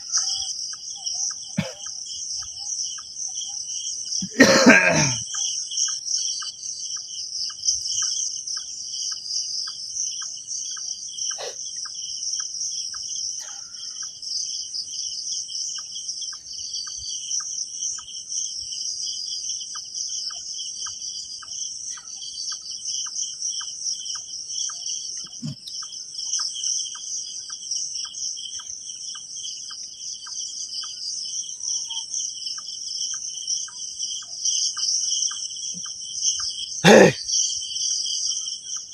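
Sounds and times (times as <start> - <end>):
crickets trilling: 0.0 - 38.9.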